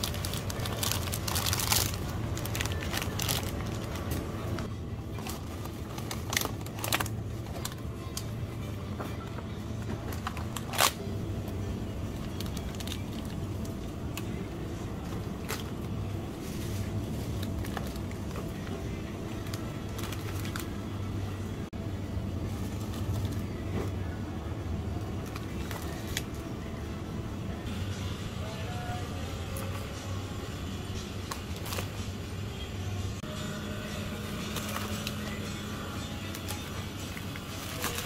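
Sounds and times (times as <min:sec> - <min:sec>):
plastic packaging crinkling: 0:00.0 - 0:07.8, 0:12.1 - 0:14.4, 0:15.4 - 0:20.7, 0:36.3 - 0:38.0
steady low hum: 0:00.0 - 0:38.0.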